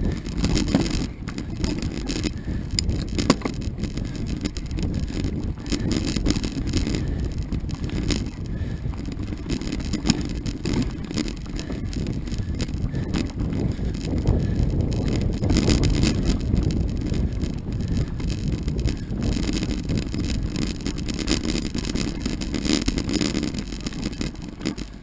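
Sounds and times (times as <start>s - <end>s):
bike rattling and knocking: 0.0s - 25.0s
bike tyre rumble on dirt trail: 0.0s - 25.0s
wind buffeting microphone: 0.0s - 25.0s.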